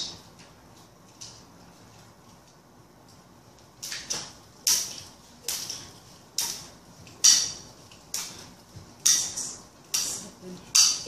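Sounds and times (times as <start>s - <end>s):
jump rope slapping floor: 3.6s - 11.0s.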